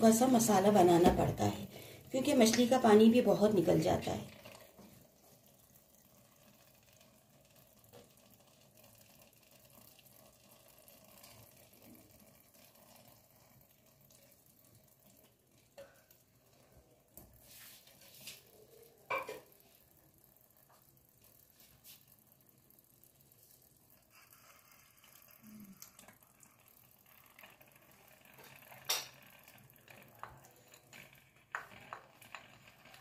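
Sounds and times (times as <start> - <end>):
faint sizzling in a pot: 0.0 - 33.0.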